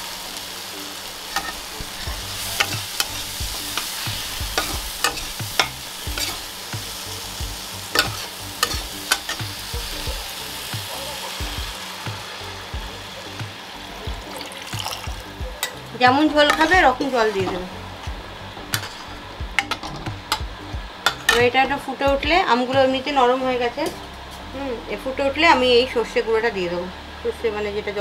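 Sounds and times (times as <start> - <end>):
spice paste sizzling in oil: 0.0 - 20.3
spatula scraping and knocking pan: 1.3 - 6.9, 7.9 - 9.6, 15.6 - 21.6
water pouring into pan: 14.2 - 15.3.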